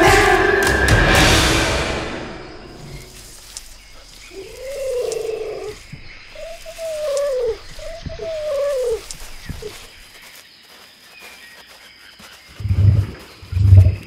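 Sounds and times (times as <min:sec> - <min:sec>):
dinosaur cooing hoots: 0:04.4 - 0:05.8, 0:06.4 - 0:09.8.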